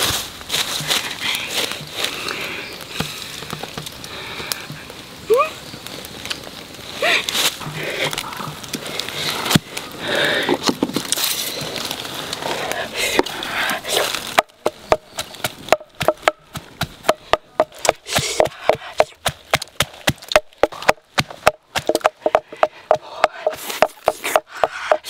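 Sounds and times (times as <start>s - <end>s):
rustling and handling noises: 5.9s - 18.4s
pestle pounding in a mortar: 14.4s - 25.0s.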